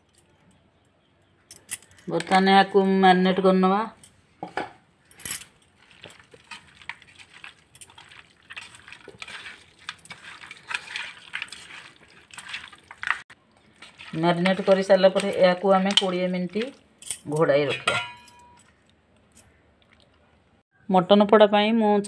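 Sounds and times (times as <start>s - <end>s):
wet squelching of meat mixed by hand: 5.8s - 16.8s.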